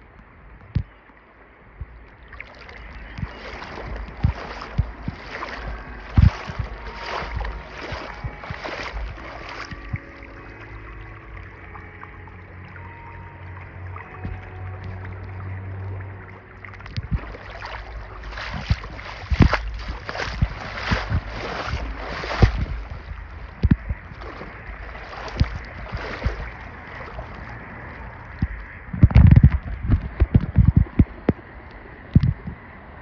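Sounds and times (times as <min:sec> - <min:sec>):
moving water: 0:00.0 - 0:33.0
wind on microphone: 0:01.6 - 0:11.8, 0:16.8 - 0:33.0.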